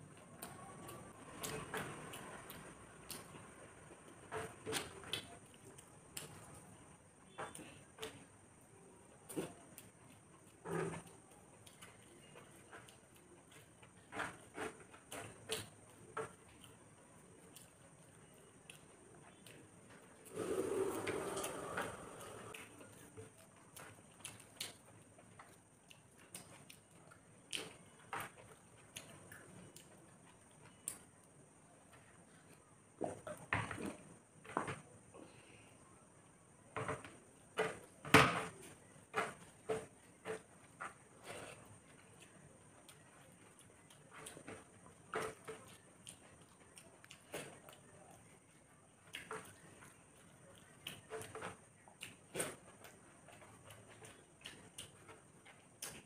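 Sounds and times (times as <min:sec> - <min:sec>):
person eating by hand: 0:00.1 - 0:36.1, 0:38.6 - 0:56.0
person chewing: 0:20.2 - 0:31.0, 0:45.2 - 0:56.0.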